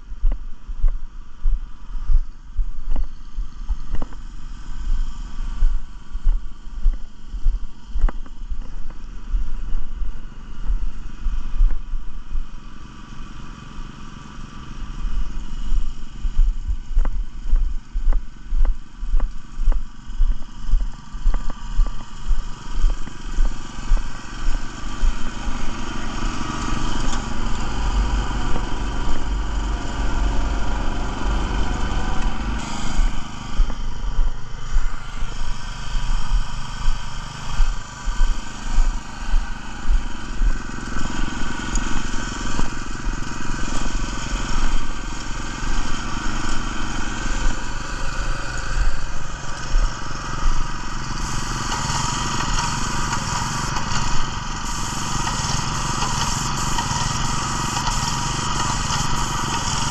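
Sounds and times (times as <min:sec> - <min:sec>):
small gasoline engine running: 0:00.0 - 0:59.9.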